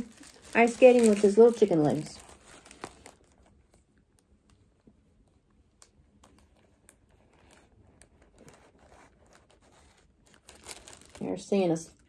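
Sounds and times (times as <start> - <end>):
plastic sleeve ticks and crinkles: 0.0 - 12.0.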